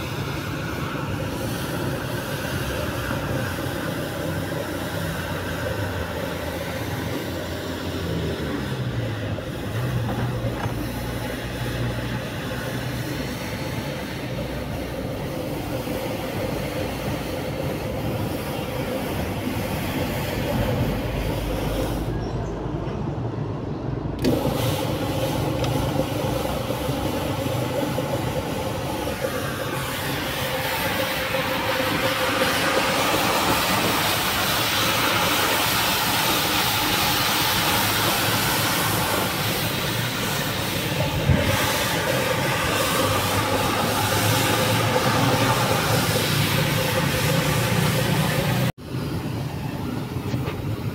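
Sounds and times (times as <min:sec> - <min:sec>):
brush hissing on wet carpet: 0:00.0 - 0:22.1, 0:24.2 - 0:48.7
floor scrubber motor hum: 0:24.2 - 0:48.7.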